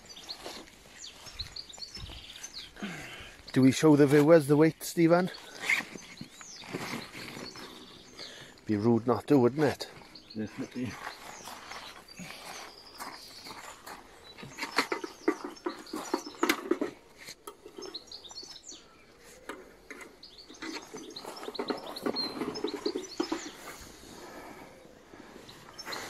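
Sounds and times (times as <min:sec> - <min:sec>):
small birds chirping: 0:00.0 - 0:26.0
rustling and knocking of gear: 0:05.4 - 0:08.1, 0:10.0 - 0:18.7, 0:19.3 - 0:23.9.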